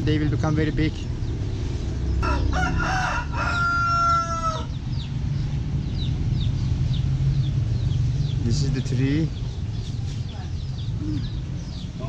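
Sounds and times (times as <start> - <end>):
rooster crowing: 2.2 - 4.8.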